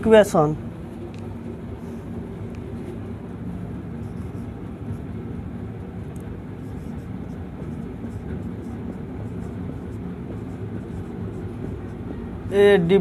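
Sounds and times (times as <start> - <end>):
low mechanical hum: 0.0 - 13.0
marker scratching on whiteboard: 4.0 - 5.1, 6.4 - 12.1.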